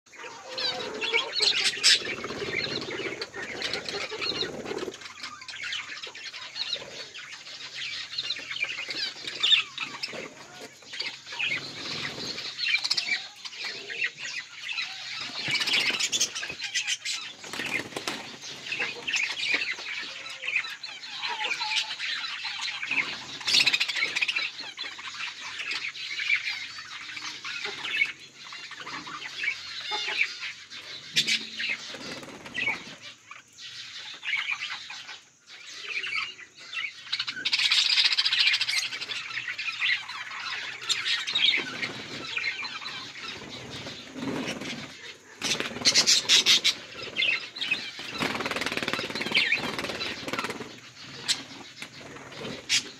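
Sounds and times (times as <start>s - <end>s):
flock of budgerigars chattering: 0.1s - 52.9s.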